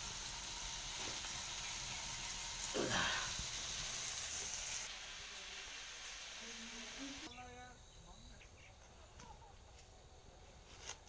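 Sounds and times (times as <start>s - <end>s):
gas stove burner hissing: 0.0s - 7.3s.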